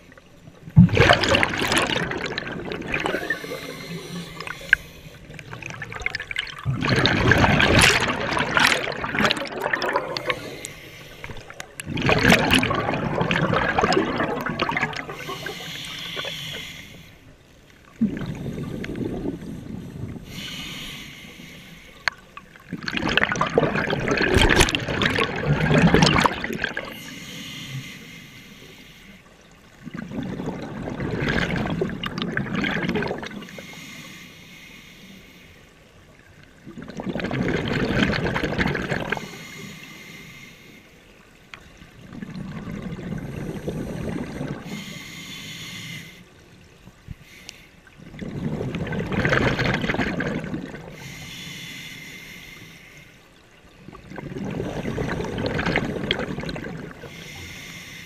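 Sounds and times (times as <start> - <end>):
exhaled bubbles underwater: 0.0 - 17.0, 17.8 - 20.6, 22.0 - 27.2, 29.5 - 33.7, 36.1 - 39.4, 41.4 - 45.0, 47.8 - 51.3, 53.4 - 57.7
regulator inhalation hiss: 15.2 - 17.2, 20.3 - 22.0, 39.2 - 40.9, 44.7 - 46.3, 51.0 - 53.1, 57.1 - 58.0.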